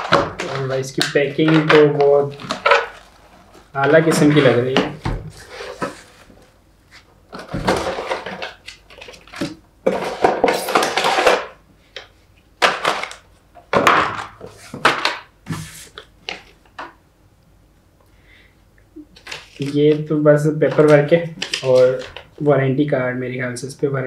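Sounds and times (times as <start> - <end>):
cardboard and foam rustling: 0.0 - 11.4, 14.4 - 16.5.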